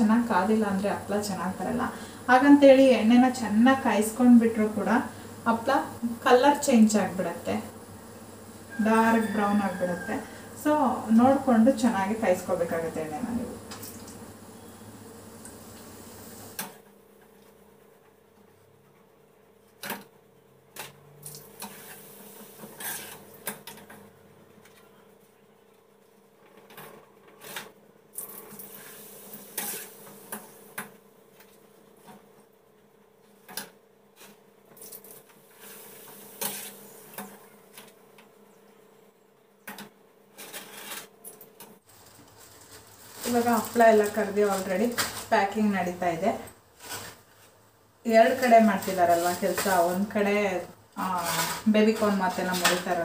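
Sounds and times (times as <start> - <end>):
faint steady hum: 0.0 - 19.7
kitchen utensils and pots clinking: 51.2 - 53.0.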